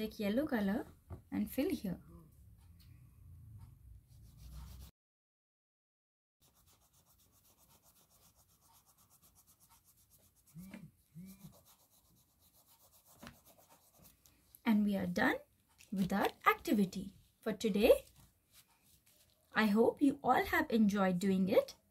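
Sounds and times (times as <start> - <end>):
crayon rubbing on paper: 4.2 - 4.9, 6.4 - 14.3.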